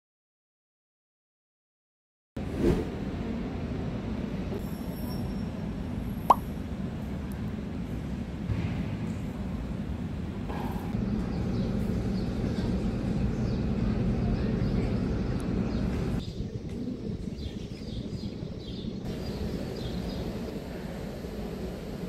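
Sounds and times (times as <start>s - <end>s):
small birds chirping: 11.0s - 20.5s.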